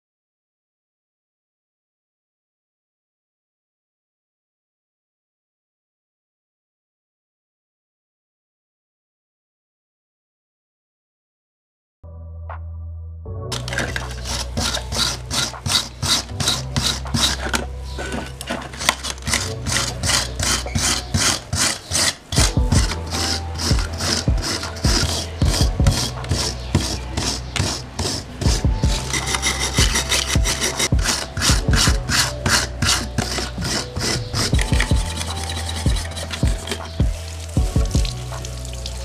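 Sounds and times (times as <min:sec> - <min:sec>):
wire brush rasping on metal: 0:13.5 - 0:39.0.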